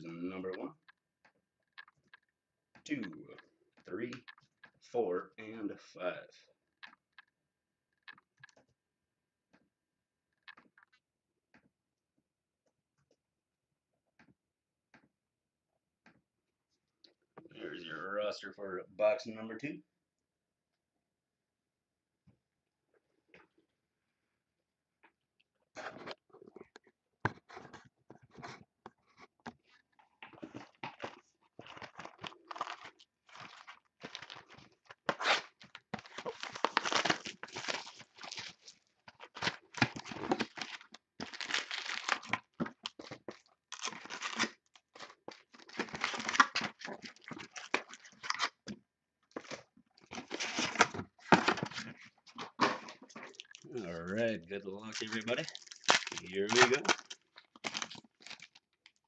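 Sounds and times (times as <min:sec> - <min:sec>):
plastic shrink-wrap tearing: 0:35.2 - 0:42.5, 0:43.7 - 0:44.6, 0:54.9 - 0:59.0.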